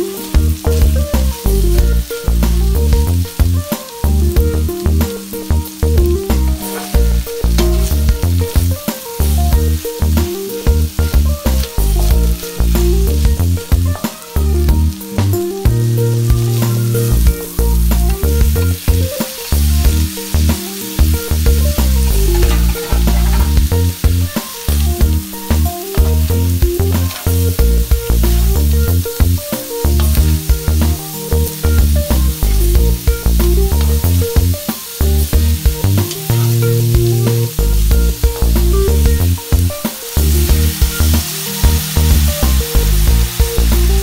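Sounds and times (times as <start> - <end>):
food sizzling in a wok: 0.0 - 44.0
music with heavy bass line: 0.0 - 44.0
spatula scraping metal wok: 5.0 - 32.4.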